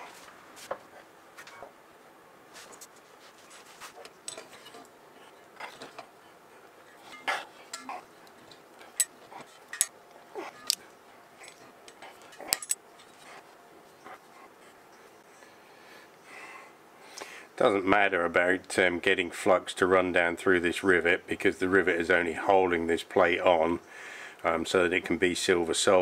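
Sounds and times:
metallic clinks of small parts: 11.4s - 13.2s.

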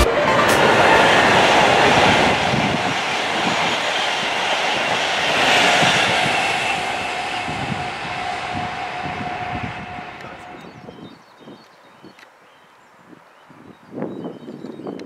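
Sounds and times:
train wheels rushing on rail: 0.0s - 11.0s.

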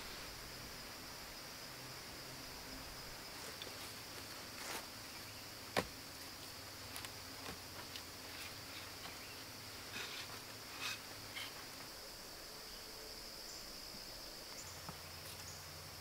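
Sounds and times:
insect chorus: 0.0s - 16.0s
rustling: 3.3s - 5.0s, 5.7s - 12.0s
wooden ladder knocking on tree: 5.7s - 6.0s.

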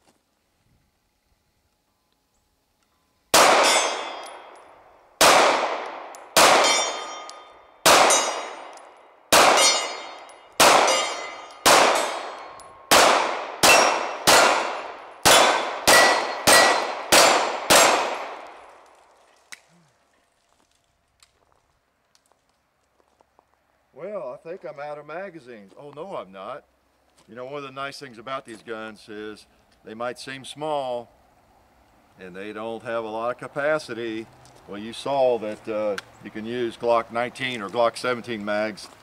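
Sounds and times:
pistol shots: 3.3s - 18.9s
steel targets ringing: 3.5s - 4.7s, 6.5s - 12.9s, 13.6s - 18.1s.

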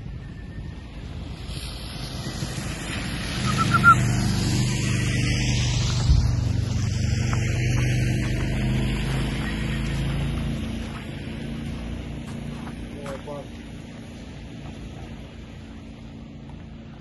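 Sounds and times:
wind noise on microphone: 0.0s - 8.1s
vehicle engine humming: 0.0s - 17.0s
high chirps: 3.4s - 4.2s.

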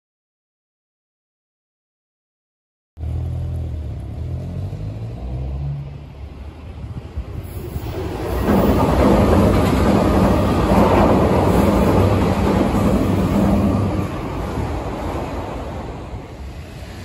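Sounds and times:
train wheels rumbling on rail: 6.0s - 17.0s.

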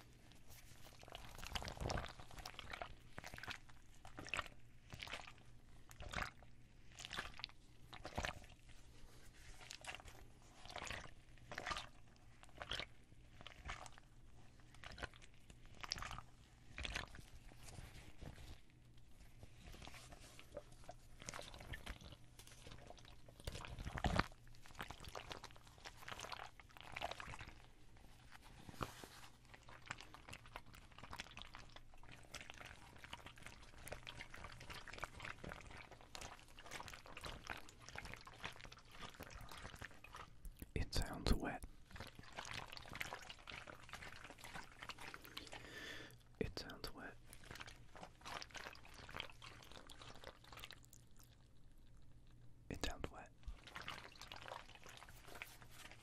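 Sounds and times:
hands rubbing soft pouch: 0.0s - 1.8s, 17.2s - 22.8s, 28.0s - 29.8s, 54.8s - 56.0s.

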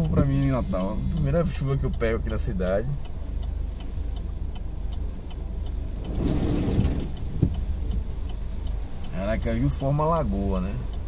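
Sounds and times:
car engine and road rumble: 0.0s - 11.0s
passing car tyre hiss and splashing: 5.7s - 7.4s.

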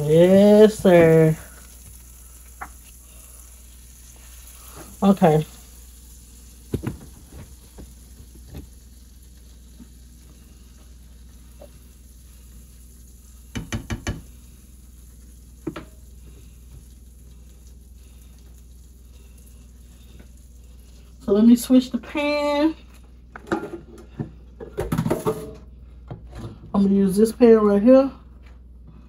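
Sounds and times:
butter sizzling in a pan: 0.0s - 23.3s.

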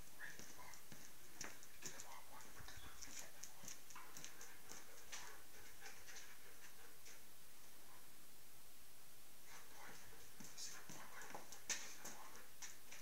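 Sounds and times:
dog claws clicking on floor: 3.0s - 6.3s, 10.4s - 13.0s.

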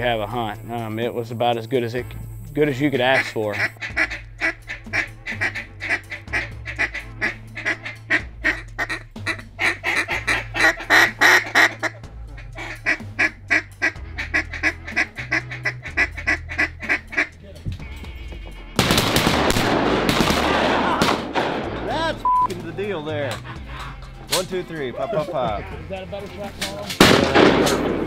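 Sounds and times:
duck quacking: 2.8s - 19.0s.

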